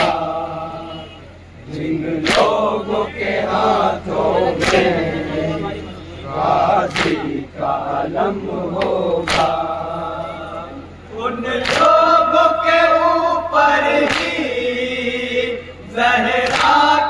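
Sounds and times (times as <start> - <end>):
men chanting in unison: 0.0 - 17.0
hand slaps on chest: 6.9 - 7.2, 8.8 - 9.6.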